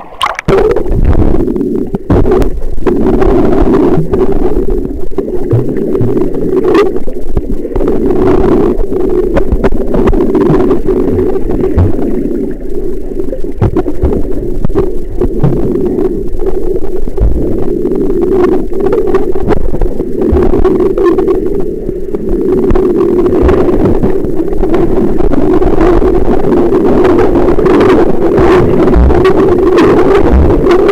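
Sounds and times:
knocks and clicks: 0.0 - 0.6
low underwater hum: 0.0 - 30.9.

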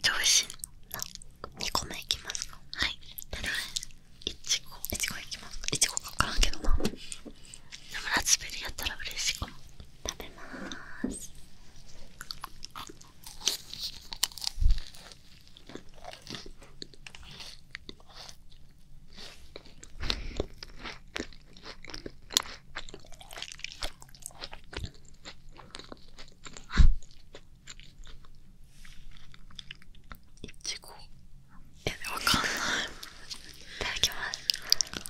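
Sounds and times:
soft chewing: 0.4 - 35.0
crisp crunching of biting: 12.2 - 18.4.

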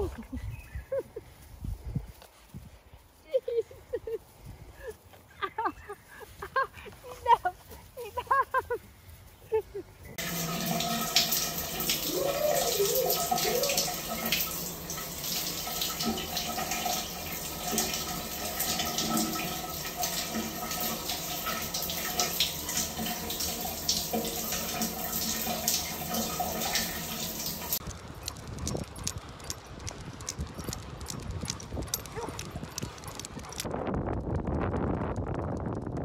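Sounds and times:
shower water spraying: 10.2 - 27.8.

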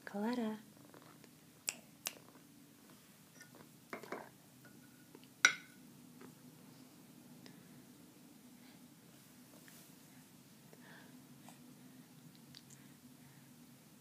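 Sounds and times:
metal spoon clinking on dish: 3.4 - 5.8.

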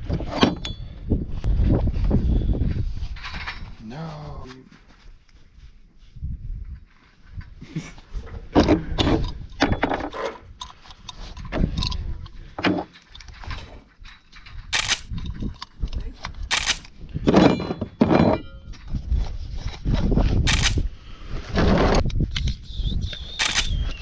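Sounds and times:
wind rumbling on microphone: 0.0 - 4.5, 5.1 - 24.0
hand tools rustling and knocking: 8.3 - 19.0
sharp clicks: 14.8 - 15.1, 16.5 - 16.9, 20.5 - 20.8, 23.4 - 24.0.

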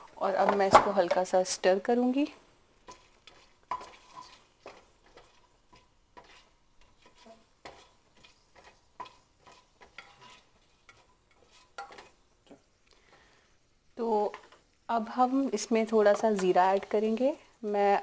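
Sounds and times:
oil sizzling: 0.0 - 18.0
metal spatula scraping pot: 2.8 - 12.2, 16.0 - 17.3.

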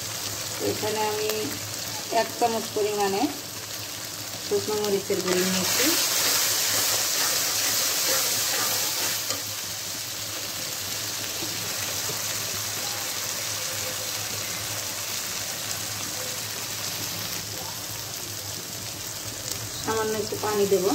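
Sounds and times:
onions sizzling in hot oil: 0.0 - 20.9
metal spatula stirring: 5.2 - 9.7.

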